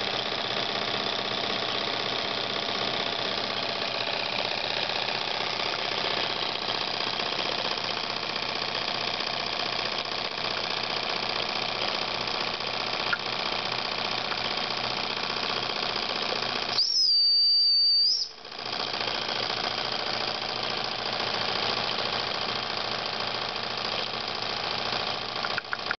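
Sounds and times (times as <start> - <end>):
toy steam engine running: 0.0 - 17.1, 18.0 - 26.0
steam whistle blowing: 16.8 - 18.3.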